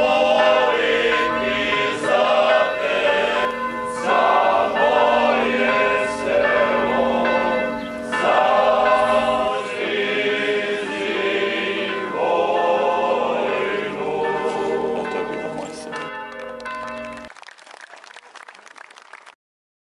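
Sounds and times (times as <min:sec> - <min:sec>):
choir singing: 0:00.0 - 0:15.8
church bells ringing: 0:00.0 - 0:17.3.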